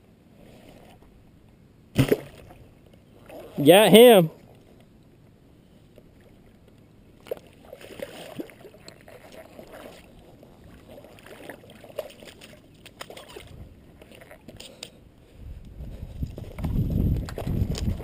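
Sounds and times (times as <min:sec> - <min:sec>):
water splashing and sloshing: 0:00.3 - 0:03.6, 0:04.3 - 0:18.0.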